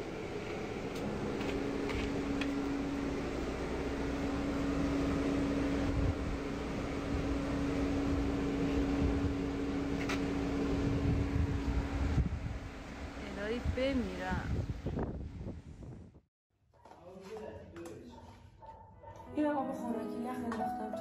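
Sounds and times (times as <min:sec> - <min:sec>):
machine hum: 0:00.0 - 0:14.0.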